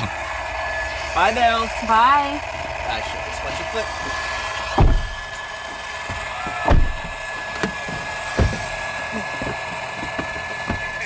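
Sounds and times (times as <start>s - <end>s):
car engine idling: 0.0s - 11.0s
heavy thumps on car body: 4.8s - 5.3s, 6.1s - 8.8s.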